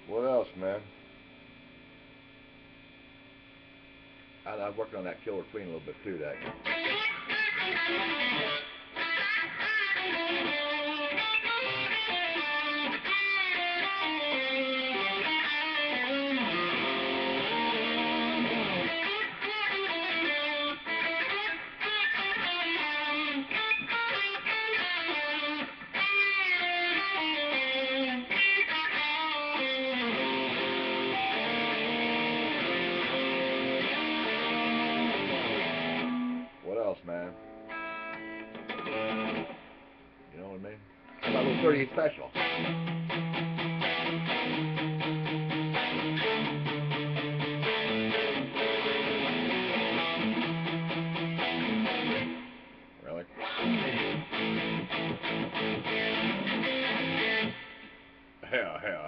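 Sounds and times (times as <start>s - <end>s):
electric guitar with string bends: 5.6s - 59.0s.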